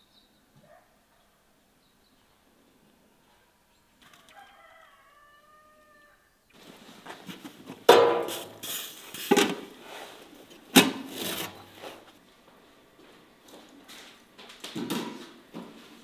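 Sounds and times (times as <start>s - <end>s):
metal pot and lid clanking: 7.9s - 9.6s.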